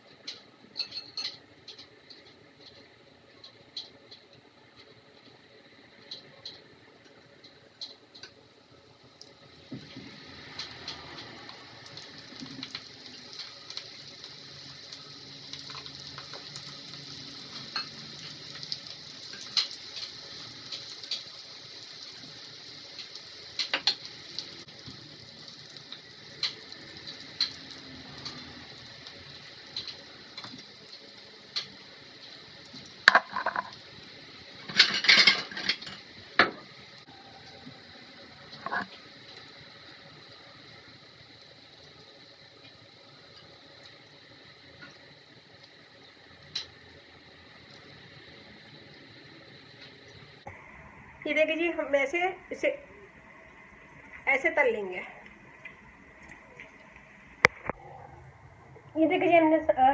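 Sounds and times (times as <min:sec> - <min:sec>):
food sizzling in hot oil: 0:00.2 - 0:57.8
clinks against pan: 0:00.8 - 0:01.4.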